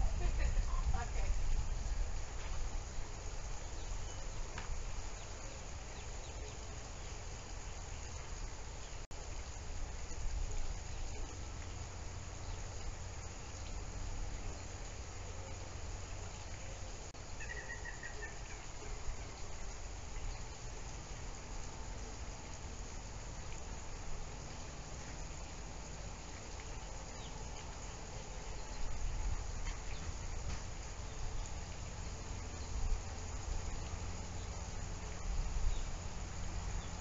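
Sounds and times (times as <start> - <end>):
low outdoor rumble: 0.0 - 37.0.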